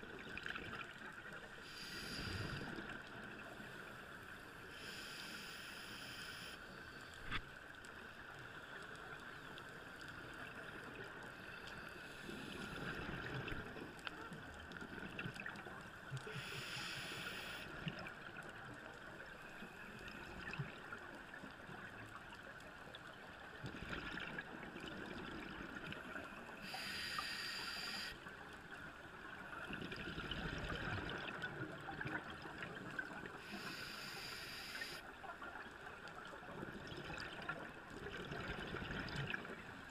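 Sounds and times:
faint steady hum: 0.0s - 39.9s
hissing regulator inhale: 1.6s - 2.9s, 3.6s - 7.4s, 16.3s - 17.7s, 26.6s - 28.2s, 33.4s - 35.0s.

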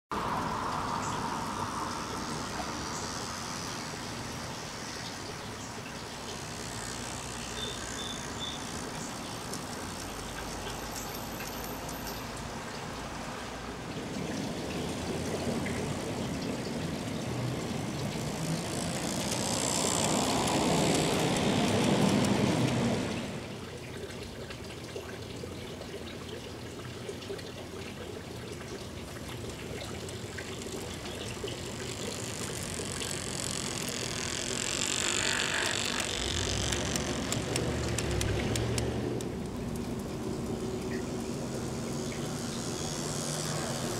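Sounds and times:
low rumble: 0.1s - 3.2s.

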